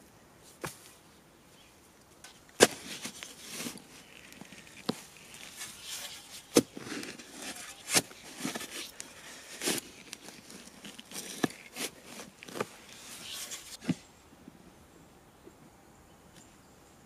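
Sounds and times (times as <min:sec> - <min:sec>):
gritty scraping of dirt: 0:01.6 - 0:14.1
spade crunching into soil: 0:02.3 - 0:14.0.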